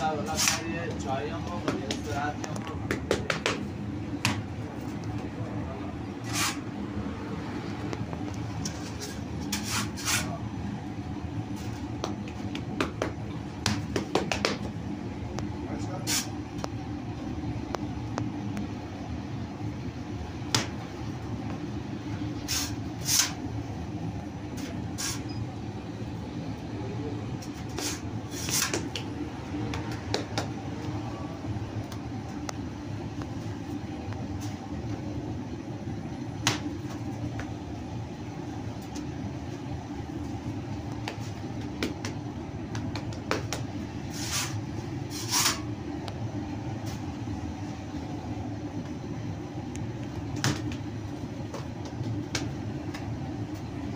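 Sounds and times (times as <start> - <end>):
machinery humming: 14.6 - 53.9.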